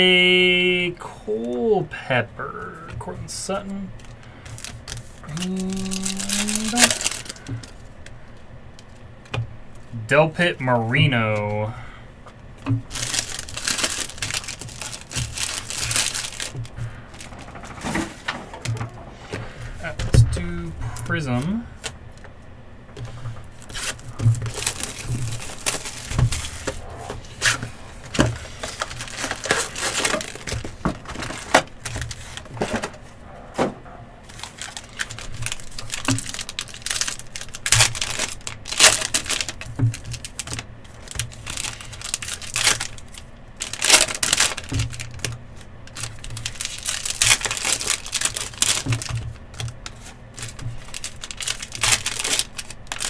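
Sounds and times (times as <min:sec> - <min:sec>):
cards being handled: 0:02.8 - 0:09.4, 0:21.0 - 0:53.0
card pack wrappers crinkling: 0:02.8 - 0:09.9, 0:12.7 - 0:22.4, 0:23.0 - 0:33.2, 0:34.2 - 0:53.0.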